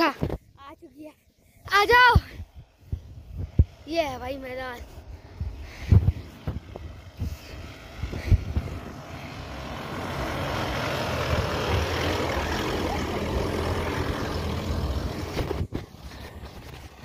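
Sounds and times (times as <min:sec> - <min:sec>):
diesel engine under load: 0:06.6 - 0:17.0.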